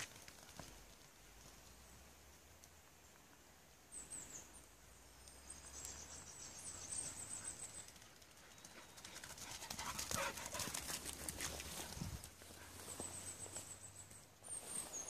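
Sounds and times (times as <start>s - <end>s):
small bird singing: 3.9s - 9.2s.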